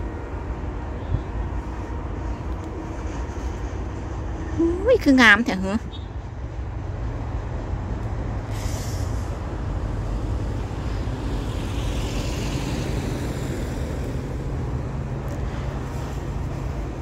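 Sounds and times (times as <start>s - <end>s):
vehicle engines rumbling: 0.0s - 17.0s
short hiss: 8.5s - 9.4s.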